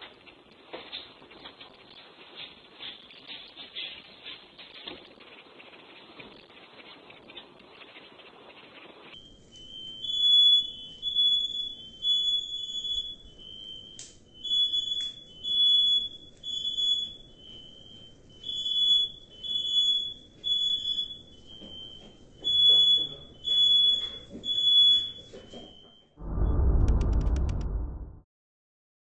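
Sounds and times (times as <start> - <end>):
smoke alarm beeping: 9.2 - 27.5.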